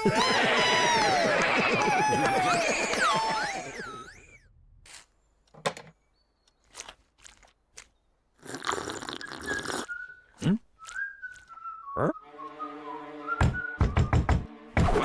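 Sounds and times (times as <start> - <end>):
loud slurp from a mug: 8.4 - 9.9.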